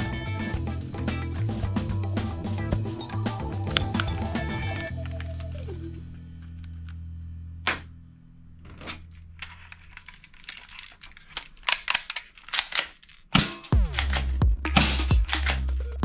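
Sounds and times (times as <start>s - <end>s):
plastic toy guns clattering: 8.7s - 15.8s.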